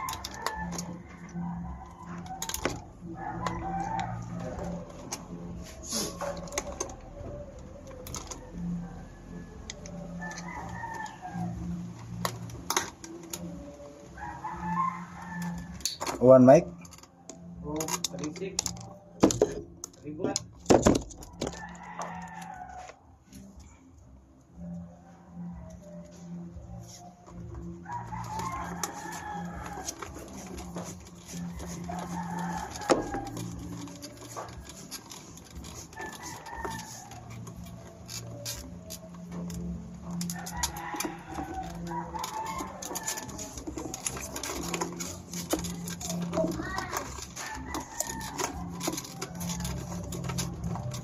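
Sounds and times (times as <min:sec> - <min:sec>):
rooster crowing: 0:00.0 - 0:05.2, 0:05.9 - 0:12.2, 0:14.1 - 0:15.8, 0:21.3 - 0:23.5, 0:27.7 - 0:51.0
wires clicking: 0:00.0 - 0:23.8, 0:25.6 - 0:51.0.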